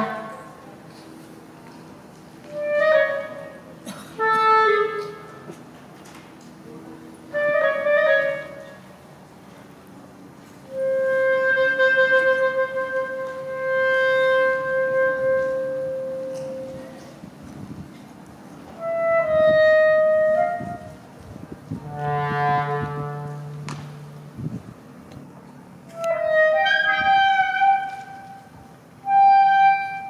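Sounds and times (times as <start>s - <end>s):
solo clarinet playing: 2.5s - 5.5s, 7.3s - 8.8s, 10.7s - 17.1s, 18.7s - 21.0s, 21.8s - 23.7s, 25.9s - 30.0s.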